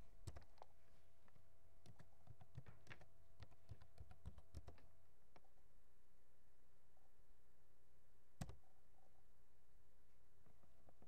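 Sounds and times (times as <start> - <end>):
faint steady hum: 0.0 - 11.0
computer keyboard typing: 0.2 - 0.7, 1.8 - 4.8, 8.4 - 8.6.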